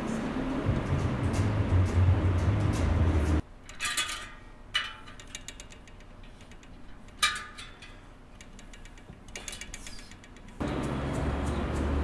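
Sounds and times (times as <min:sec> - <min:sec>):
tire lever scraping bicycle rim: 0:08.4 - 0:10.6.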